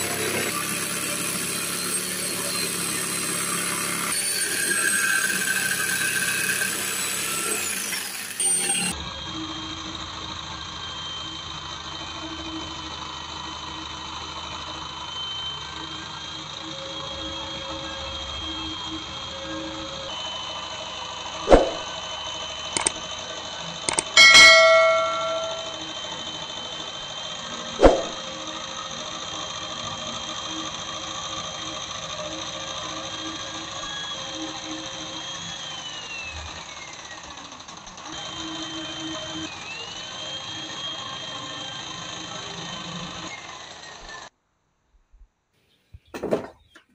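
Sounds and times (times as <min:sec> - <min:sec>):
saw blade cutting wood: 0:00.0 - 0:09.0, 0:18.7 - 0:44.3
jigsaw motor whine: 0:00.0 - 0:44.3.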